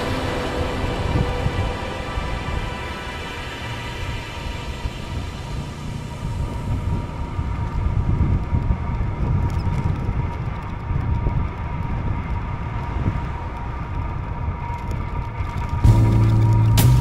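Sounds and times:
wind buffeting microphone: 0.0 - 16.6
bicycle tyres rolling on tarmac: 5.1 - 17.0.

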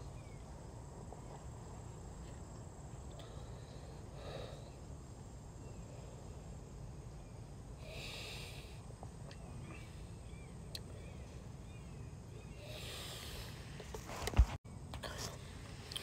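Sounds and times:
low outdoor rumble: 0.0 - 16.0
sharp breath through nose: 12.5 - 13.8.

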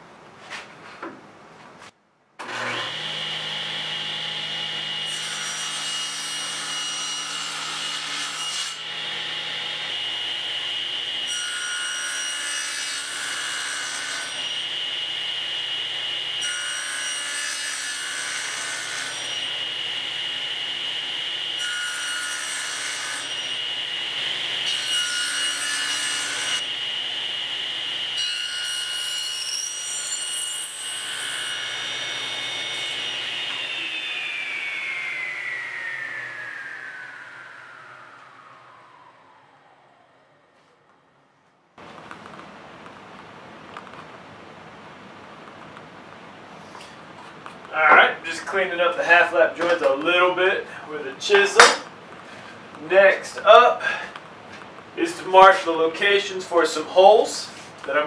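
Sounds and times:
table saw whining: 2.4 - 41.6
saw blade cutting wood: 21.6 - 38.2, 51.2 - 51.9.

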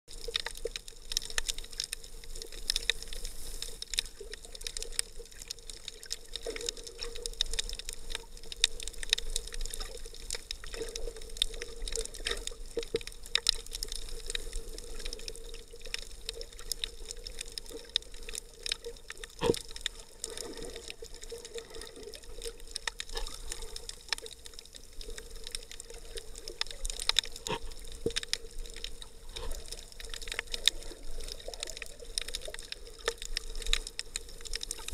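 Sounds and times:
sharp clicks and crackles: 0.1 - 34.9
muffled underwater noise: 16.2 - 34.9.

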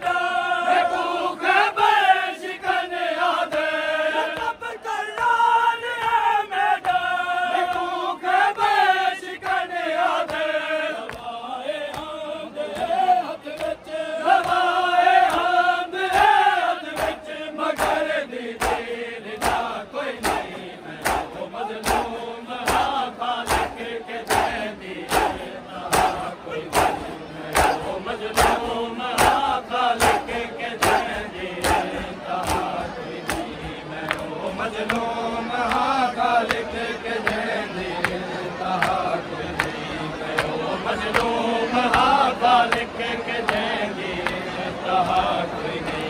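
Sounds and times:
men chanting in unison: 0.0 - 46.0
chest-beating slaps: 18.6 - 32.7.

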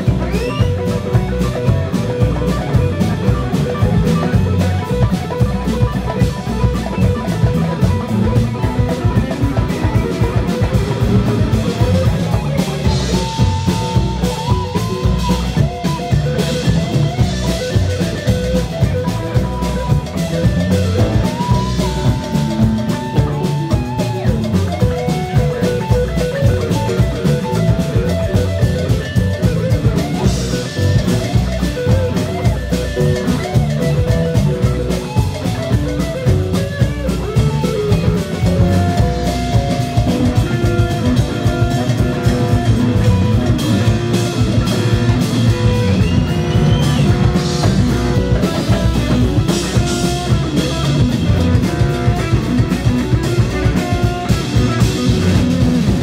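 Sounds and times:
drum kit beat: 0.0 - 56.0
guitar and keyboard: 0.0 - 56.0
sliding lead line: 0.0 - 56.0.

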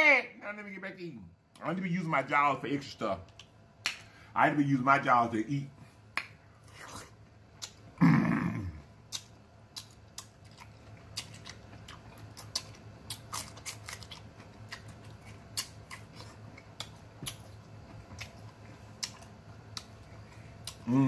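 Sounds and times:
faint low hum: 0.0 - 21.0
person chewing with lip smacks: 6.6 - 7.9, 9.1 - 20.9.

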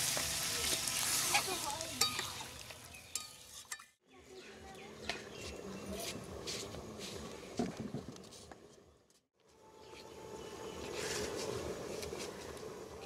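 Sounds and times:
metal ladle clinking against wok: 2.0 - 2.4.

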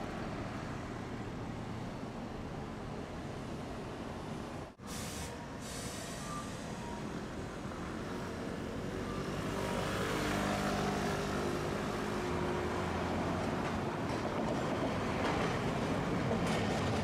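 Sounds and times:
streetcar rolling noise: 0.0 - 17.0.

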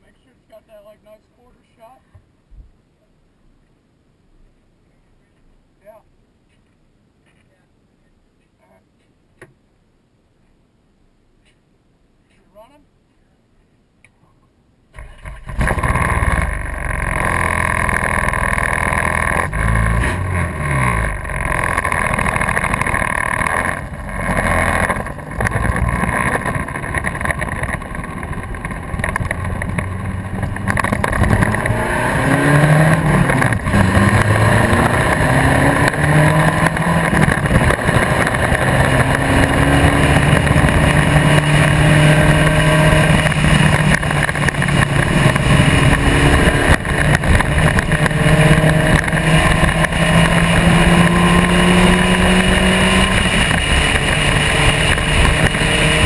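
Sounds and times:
race car engine at speed: 15.0 - 56.0
wind noise: 15.0 - 56.0.

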